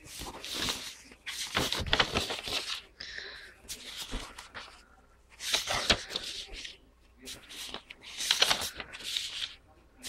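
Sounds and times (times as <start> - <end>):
paper rustling by hand: 0.0 - 10.0.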